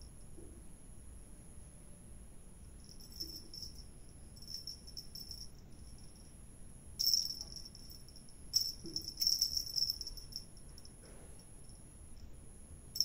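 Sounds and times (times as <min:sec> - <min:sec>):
small bell jingling: 0:02.7 - 0:06.4, 0:07.0 - 0:13.0.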